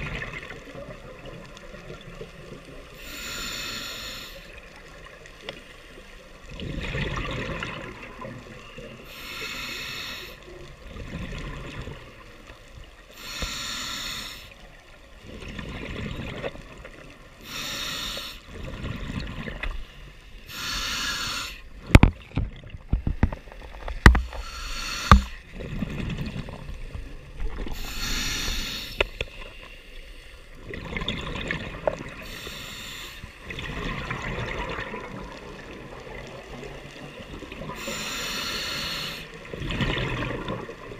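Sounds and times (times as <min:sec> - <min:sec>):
diver breathing through regulator: 0:03.0 - 0:04.5, 0:09.1 - 0:10.4, 0:13.1 - 0:14.6, 0:17.4 - 0:18.6, 0:20.4 - 0:21.7, 0:24.2 - 0:25.4, 0:27.6 - 0:29.2, 0:32.2 - 0:33.4, 0:37.8 - 0:39.4.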